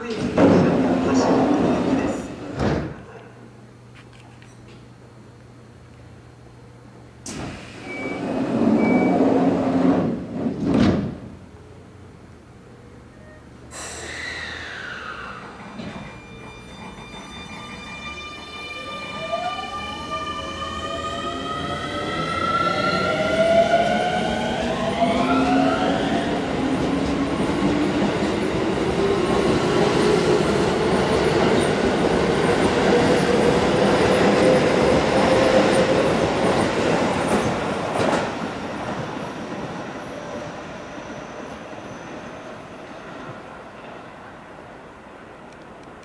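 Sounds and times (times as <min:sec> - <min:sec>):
train wheels rumbling and clattering: 0:00.0 - 0:03.2, 0:07.2 - 0:11.5, 0:13.8 - 0:18.5, 0:23.0 - 0:41.8.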